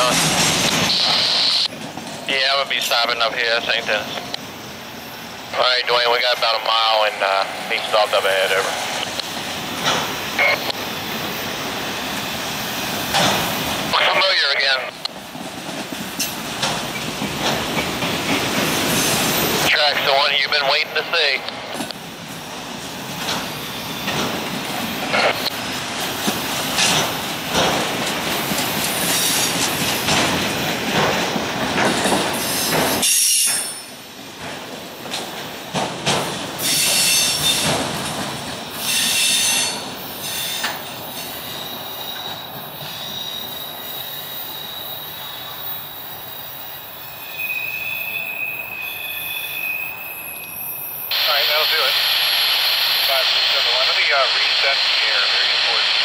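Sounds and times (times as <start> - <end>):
high wheel squeals: 38.8 - 51.1.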